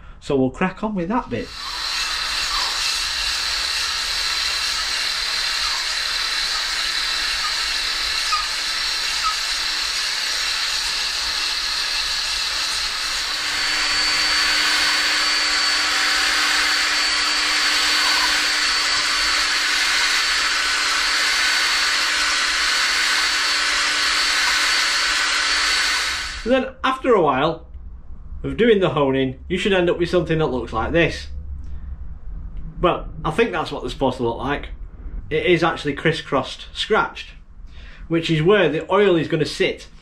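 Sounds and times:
drill motor whine: 1.4 - 26.6.

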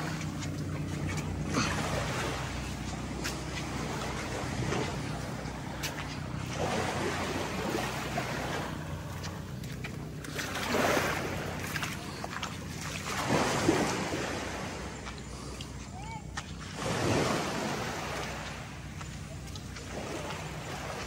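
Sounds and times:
sea waves washing in: 0.0 - 9.5, 10.2 - 15.5, 16.6 - 19.0
steady low hum: 0.0 - 21.0.

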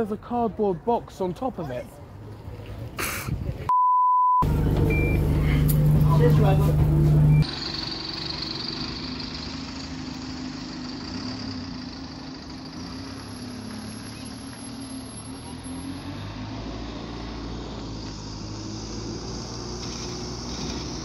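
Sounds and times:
street traffic: 0.0 - 3.7, 4.4 - 21.0
deep low rumble: 4.4 - 7.4
bus engine running: 4.4 - 21.0.

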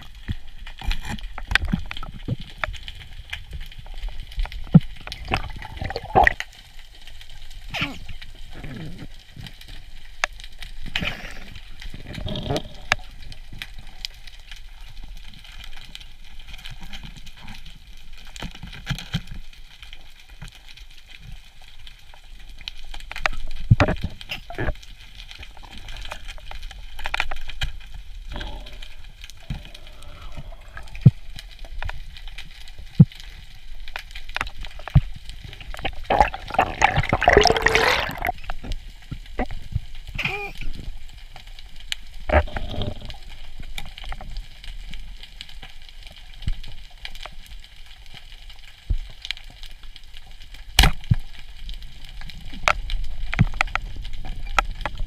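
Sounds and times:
muffled underwater movement: 0.0 - 55.0
air bubbles burst: 4.8 - 6.4, 35.5 - 38.5.

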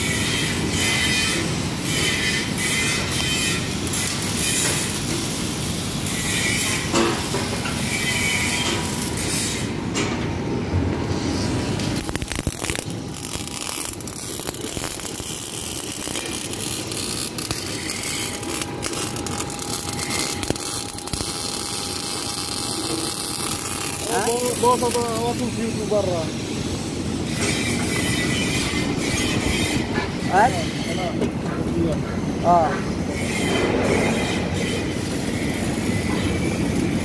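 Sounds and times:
welding arc hissing: 0.0 - 9.8, 11.1 - 31.2
welders working: 11.8 - 31.3.

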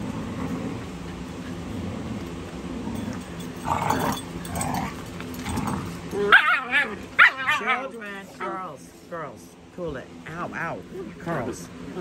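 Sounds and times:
puppies growling: 0.0 - 8.8.

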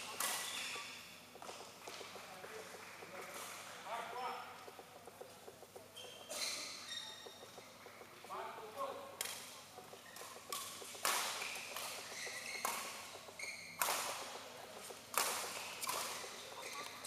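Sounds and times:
rackets hitting shuttlecock: 0.0 - 3.7, 9.0 - 17.0
shoes squeaking on court: 0.0 - 3.7, 4.5 - 17.0.

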